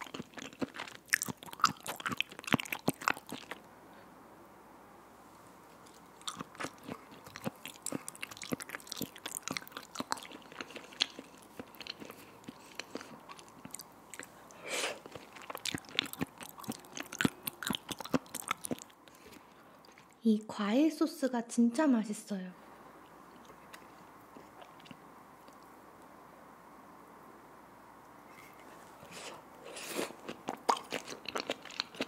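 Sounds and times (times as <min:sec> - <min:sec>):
wet chewing mouth clicks: 0:00.0 - 0:03.6, 0:05.8 - 0:20.2.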